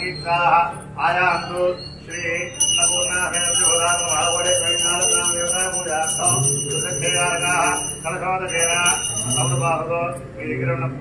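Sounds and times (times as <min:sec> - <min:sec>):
man chanting: 0:00.0 - 0:11.0
hand bell ringing: 0:02.1 - 0:09.9.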